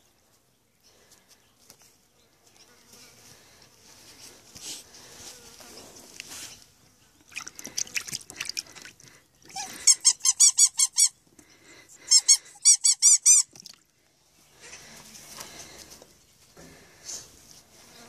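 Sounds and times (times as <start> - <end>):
rubber squeaky dog toy: 9.5 - 11.2, 12.1 - 13.5.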